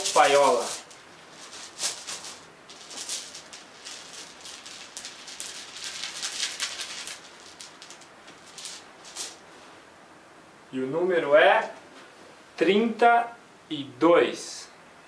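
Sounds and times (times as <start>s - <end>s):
plastic balls rattling in bag: 0.0s - 9.4s
fabric rustling: 0.0s - 9.8s.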